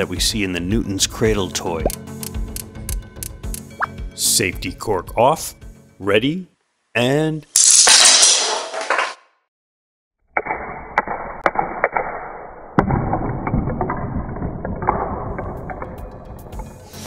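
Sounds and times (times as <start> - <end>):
ball knocking over figures: 10.4 - 16.8.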